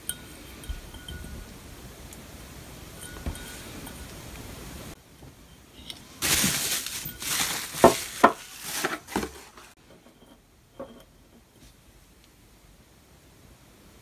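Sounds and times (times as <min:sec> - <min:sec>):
plastic film crinkling: 0:06.2 - 0:09.8.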